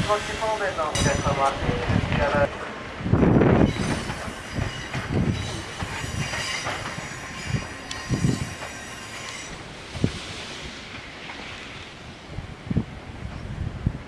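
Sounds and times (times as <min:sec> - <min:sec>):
train rumble: 0:00.0 - 0:14.0
train wheels knocking over rail joints: 0:03.5 - 0:10.2.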